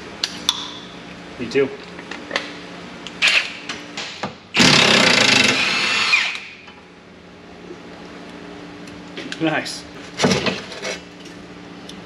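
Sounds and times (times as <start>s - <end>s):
impact wrench burst: 4.5s - 6.6s.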